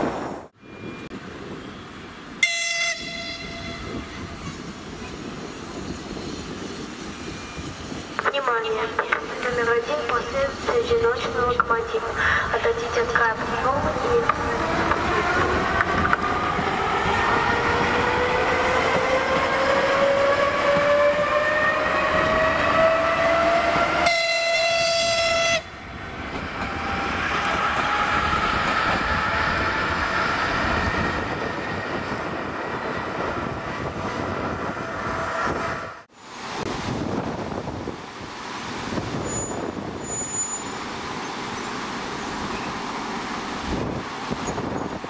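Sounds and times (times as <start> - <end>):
diesel locomotive pulling away: 0.2 - 36.9, 38.2 - 45.0
locomotive horn blast: 2.4 - 4.3, 24.0 - 25.8.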